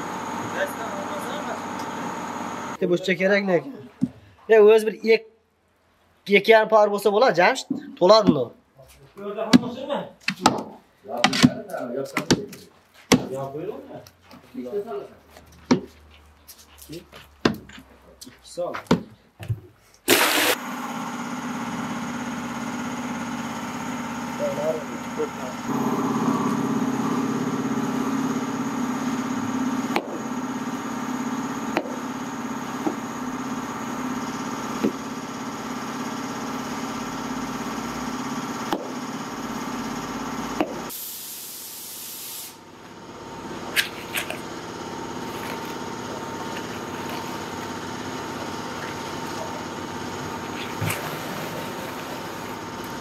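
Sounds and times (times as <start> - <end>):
machinery running: 21.7 - 40.9, 43.0 - 53.0
trowel scraping and knocking: 43.7 - 44.5, 45.1 - 49.4, 50.3 - 52.6.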